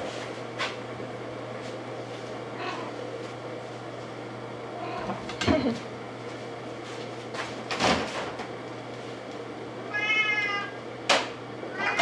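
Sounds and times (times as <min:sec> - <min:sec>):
cat meowing: 0:02.6 - 0:03.0, 0:04.8 - 0:05.2, 0:09.9 - 0:10.8, 0:11.7 - 0:12.0.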